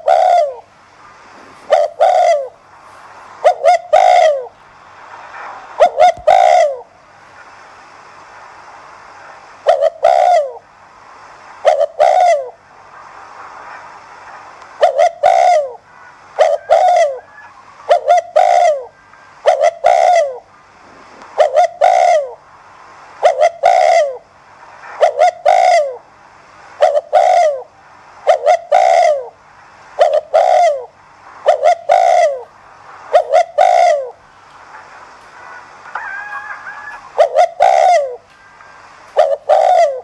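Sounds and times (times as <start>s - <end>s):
dove cooing: 0.0s - 0.7s, 1.6s - 2.6s, 3.4s - 4.5s, 5.8s - 6.9s, 9.6s - 10.6s, 11.6s - 12.6s, 14.8s - 15.8s, 16.4s - 20.5s, 21.4s - 22.4s, 23.2s - 24.2s, 25.0s - 26.0s, 26.8s - 29.4s, 30.0s - 32.5s, 33.1s - 34.2s, 35.9s - 38.3s, 39.1s - 40.0s.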